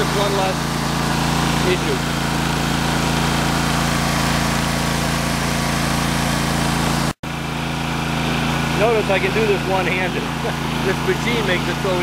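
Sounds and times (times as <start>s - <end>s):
trencher engine running under load: 0.0s - 12.0s.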